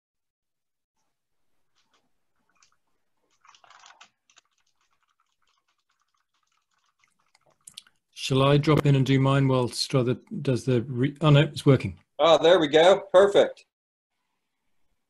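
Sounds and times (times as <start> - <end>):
typing on keyboard: 1.7 - 7.6.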